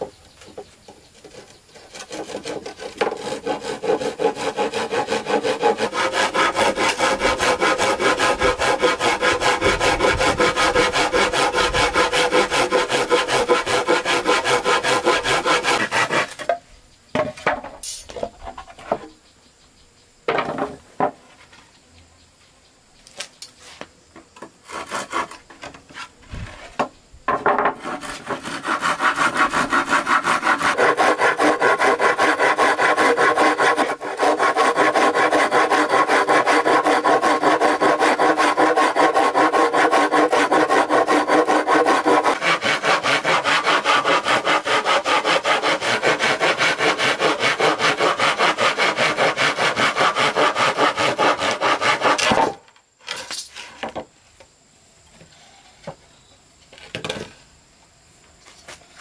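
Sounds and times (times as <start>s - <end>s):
saw cutting wood: 1.1s - 16.5s, 24.6s - 26.7s, 27.5s - 52.6s.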